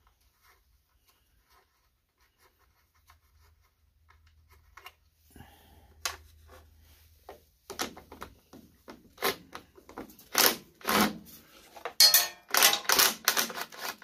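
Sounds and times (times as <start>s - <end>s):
metal parts scraping: 12.0s - 14.0s
small metal clicks: 12.0s - 14.0s.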